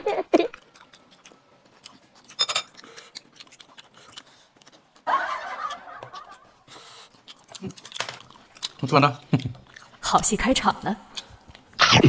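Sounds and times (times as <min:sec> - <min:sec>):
tableware clink: 0:02.4 - 0:02.7.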